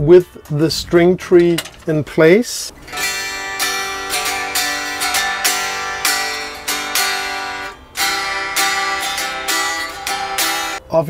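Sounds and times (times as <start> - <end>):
electric guitar strummed chords: 2.8 - 10.8.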